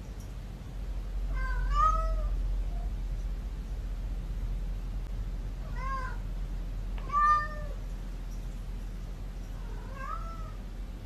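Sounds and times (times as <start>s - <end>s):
low steady hum: 0.0s - 11.0s
cat meowing: 1.3s - 2.9s, 5.6s - 6.2s, 7.0s - 7.8s, 9.6s - 10.6s.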